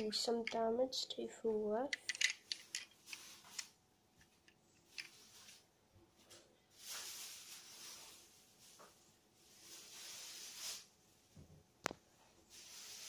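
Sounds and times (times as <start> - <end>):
soft rustle: 6.7 - 11.3, 12.2 - 13.0.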